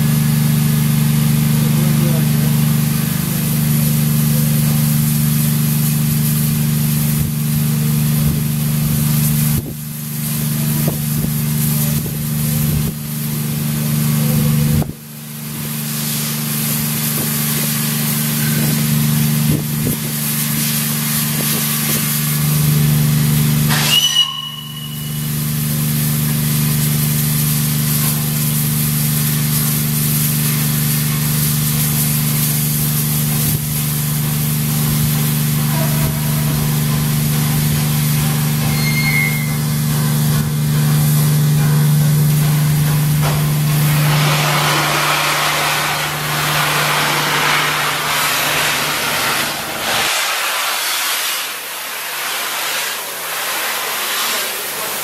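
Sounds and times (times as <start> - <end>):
steam hissing: 1.2 - 55.0
short high steam whistle: 18.1 - 19.0, 23.7 - 26.2, 38.5 - 39.8.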